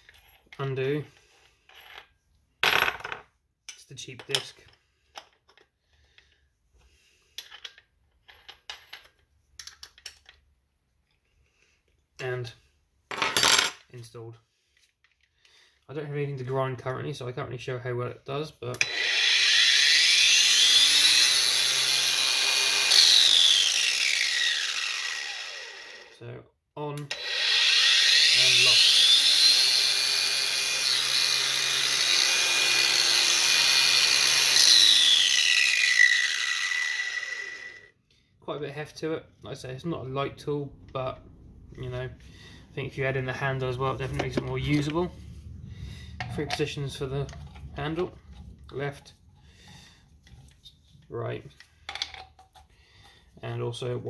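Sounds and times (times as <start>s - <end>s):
angle grinder whining: 18.8s - 26.2s, 27.1s - 37.9s.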